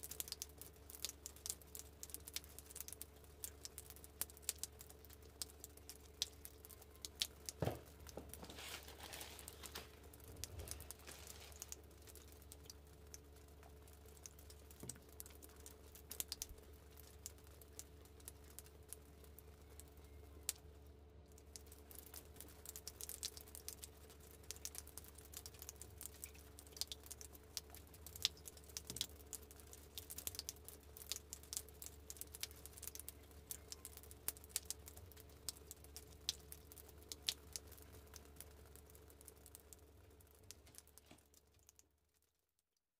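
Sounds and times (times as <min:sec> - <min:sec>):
faint steady hum: 0:00.0 - 0:42.6
tissue paper crinkling: 0:07.6 - 0:11.8.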